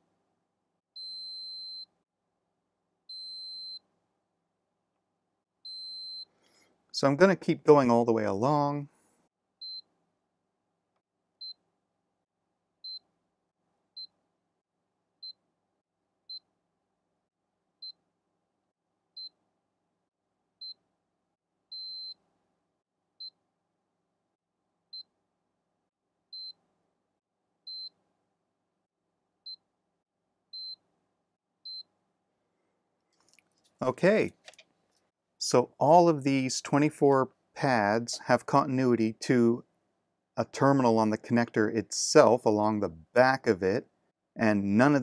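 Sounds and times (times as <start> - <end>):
multimeter continuity beeps: 1.0 - 1.9, 3.1 - 3.8, 5.7 - 6.3, 9.6 - 9.9, 21.7 - 22.2, 26.3 - 26.6, 27.7 - 28.0, 30.6 - 30.8, 31.7 - 31.9.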